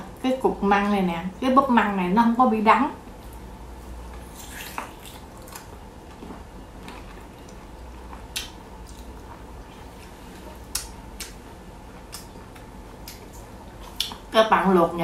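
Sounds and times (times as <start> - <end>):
faint steady hum: 0.0 - 15.0
person chewing with wet clicks: 4.1 - 14.3.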